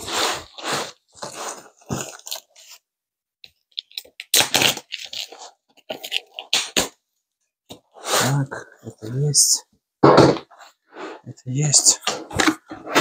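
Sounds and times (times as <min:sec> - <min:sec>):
cardboard crunching and tearing: 0:00.0 - 0:02.6, 0:04.1 - 0:07.0.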